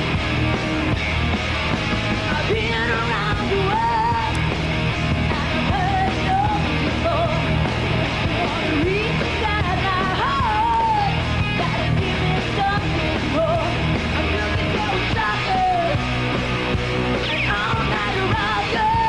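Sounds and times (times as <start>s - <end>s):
metal band playing live: 0.0s - 19.0s
woman belting lead vocal: 5.2s - 16.2s.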